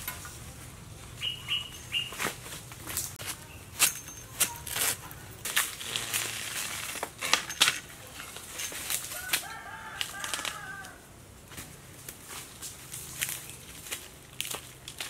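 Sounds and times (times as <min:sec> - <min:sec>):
chicken calling: 0:01.2 - 0:02.2.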